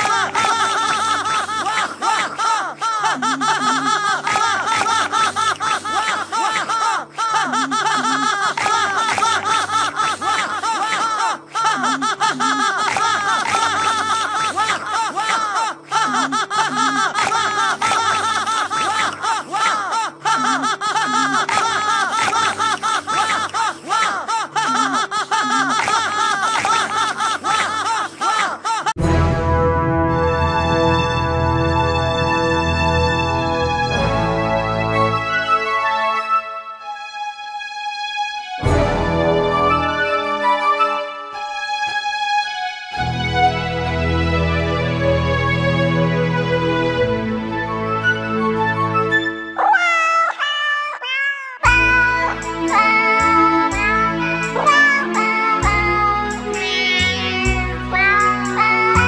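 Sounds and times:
cartoon character laughing: 0.0 - 29.0, 49.6 - 59.0
music: 0.0 - 49.6, 51.7 - 59.0.

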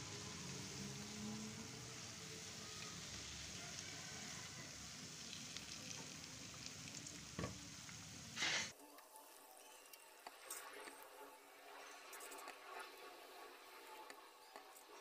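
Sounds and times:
deep-frying sizzle: 0.0 - 15.0
oil crackling: 0.1 - 8.7.

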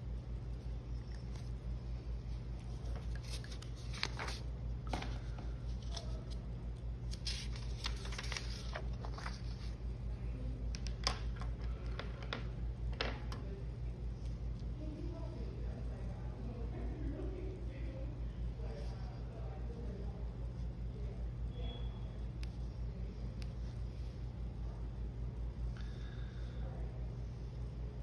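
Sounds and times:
paper rustling: 2.6 - 6.4, 7.1 - 9.8.

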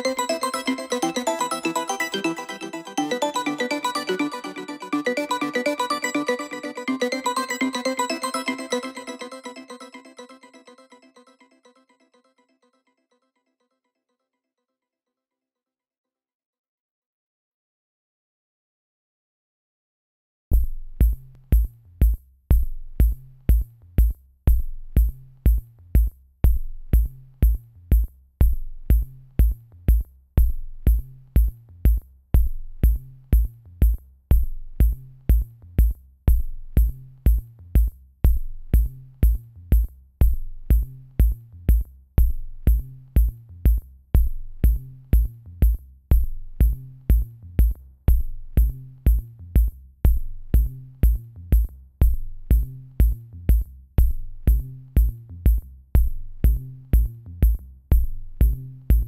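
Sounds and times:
electronic music with drum machine: 0.0 - 10.4, 38.8 - 41.4, 52.0 - 59.0.

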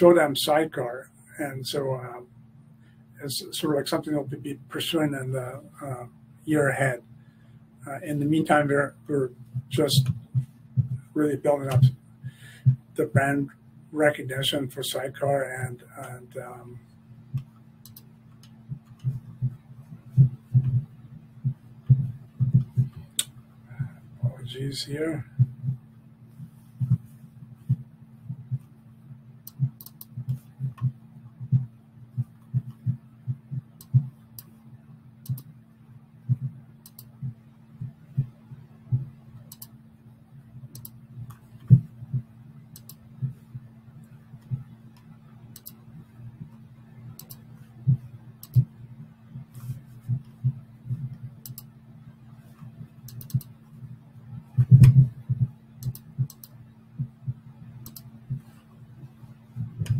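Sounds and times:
steady low hum: 0.0 - 59.9
typing on computer keyboard: 53.1 - 53.5.

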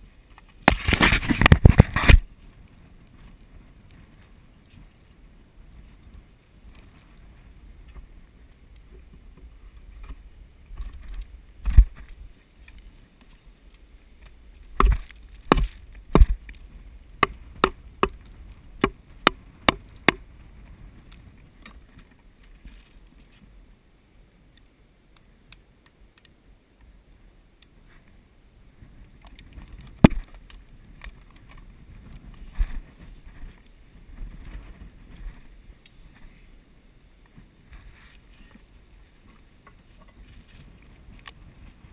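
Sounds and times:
low wind rumble on microphone: 0.0 - 25.5, 26.4 - 41.9
sharp wooden knocks: 14.8 - 16.4, 17.2 - 18.2, 18.8 - 20.2
wooden thumps: 14.8 - 16.6.

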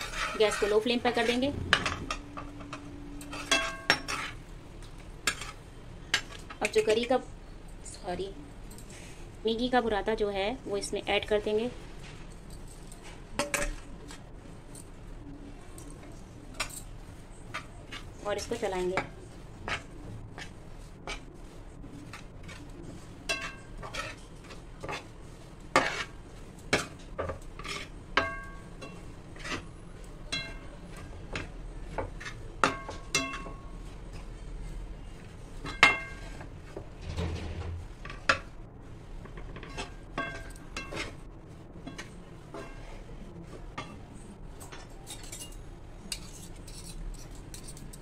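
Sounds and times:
spoon scraping and knocking pan: 0.0 - 7.0, 17.5 - 38.5, 39.2 - 41.2, 41.8 - 44.0.

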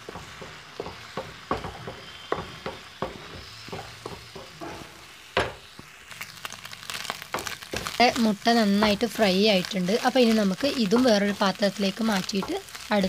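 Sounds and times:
spatula knocking on pan: 0.0 - 5.6, 10.8 - 11.4
eggs sizzling in oil: 0.0 - 13.0
spatula scraping pan: 7.4 - 13.0.

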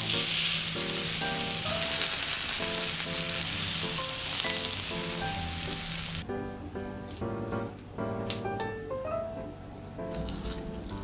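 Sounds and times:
batter pouring: 0.0 - 6.2
batter sizzling in hot pan: 0.0 - 6.2.

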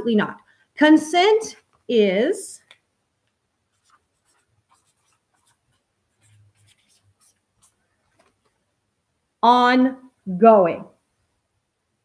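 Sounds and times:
marker scratching on paper: 3.6 - 8.4.

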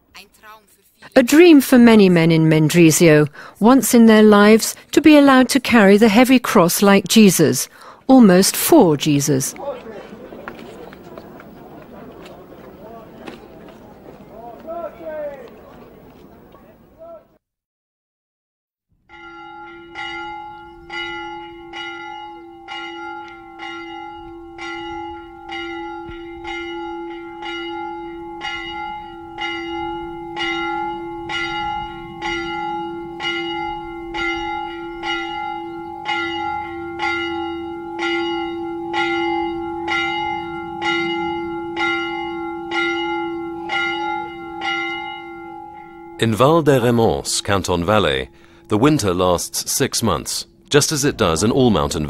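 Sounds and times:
church bell tolling: 19.1 - 52.0.

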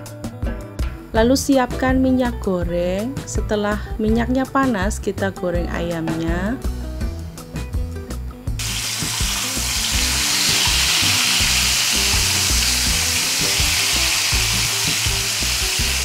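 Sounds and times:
chicken deep-frying in oil: 8.6 - 16.0.

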